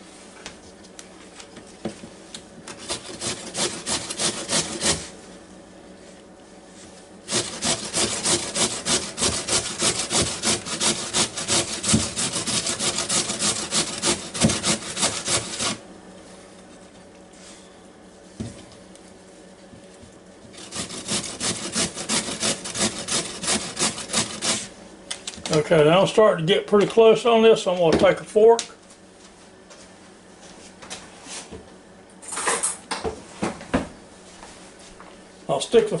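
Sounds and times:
potato rasping on metal grater: 2.7 - 5.1, 7.3 - 15.8, 20.6 - 24.7.

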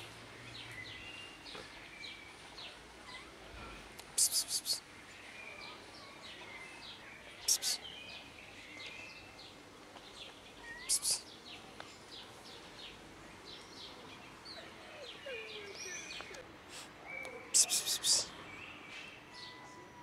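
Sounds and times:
birds chirping and calling: 7.4 - 8.2, 10.6 - 11.4, 13.5 - 16.4, 17.0 - 19.8.

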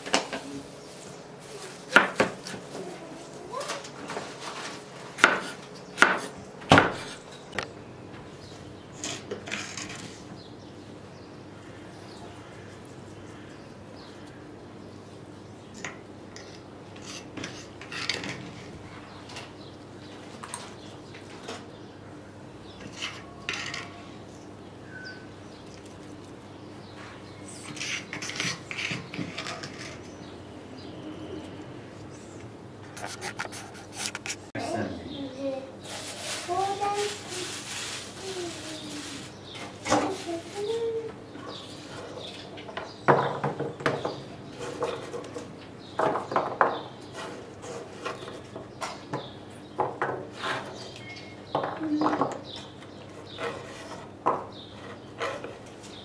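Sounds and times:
rustling and light scraping on board: 0.1 - 5.6, 32.9 - 34.5, 47.1 - 49.1, 51.6 - 56.0
bird chirping: 19.0 - 25.8, 50.7 - 53.6.

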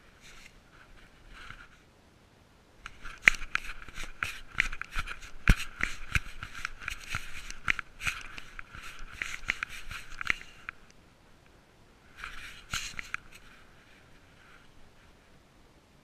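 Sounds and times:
clicks and scrapes on wooden planks: 2.8 - 10.9, 12.2 - 13.5.

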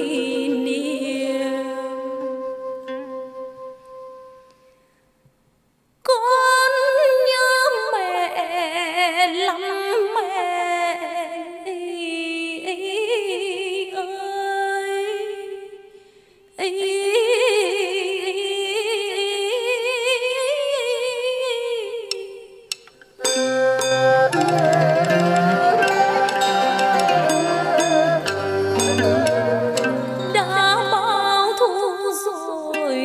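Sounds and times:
woman singing with vibrato: 0.0 - 2.8, 6.1 - 15.8, 16.6 - 22.6, 23.2 - 33.0.

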